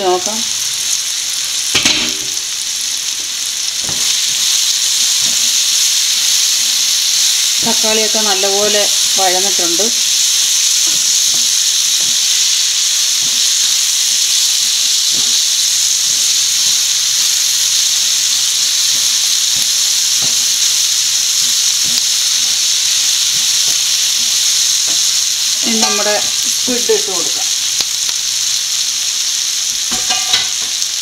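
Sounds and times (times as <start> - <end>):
vegetables sizzling in oil: 0.0 - 31.0.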